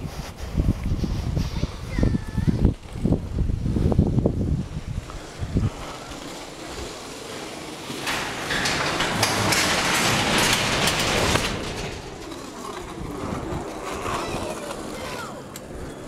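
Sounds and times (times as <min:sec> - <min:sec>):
garage door rollers rattling: 0:05.4 - 0:14.8.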